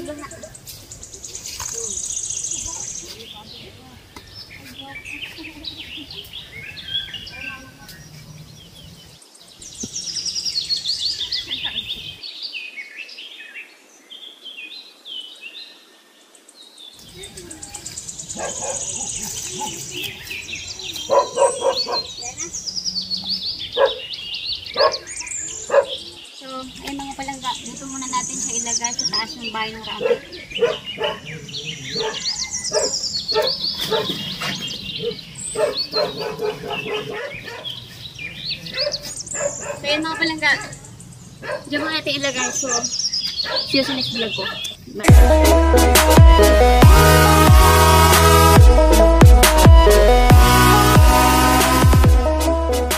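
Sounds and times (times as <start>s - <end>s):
small birds chirping: 0.0s - 45.2s
dog barking: 18.4s - 19.8s, 21.1s - 22.2s, 23.8s - 24.1s, 24.8s - 25.1s, 25.7s - 26.1s, 29.9s - 37.8s, 38.7s - 40.8s, 41.4s - 41.8s, 43.4s - 44.8s.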